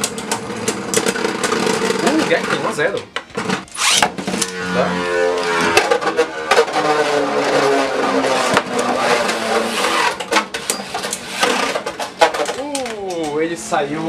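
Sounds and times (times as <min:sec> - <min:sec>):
spinning tops whirring: 0:03.5 - 0:12.2.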